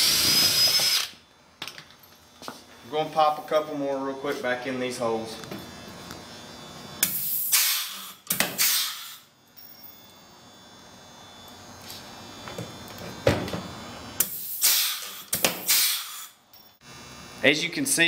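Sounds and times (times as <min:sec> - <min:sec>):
air hiss bursts: 0:07.0 - 0:09.3, 0:14.2 - 0:16.4.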